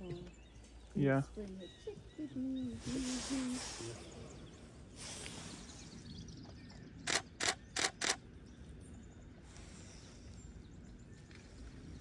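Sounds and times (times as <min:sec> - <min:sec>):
camera shutter clicks: 0:07.1 - 0:08.2.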